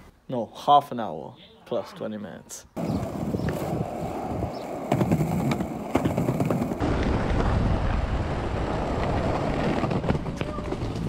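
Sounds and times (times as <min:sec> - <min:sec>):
skateboard wheels rolling on asphalt: 0:02.8 - 0:11.0
sharp skateboard clacks: 0:04.8 - 0:06.8.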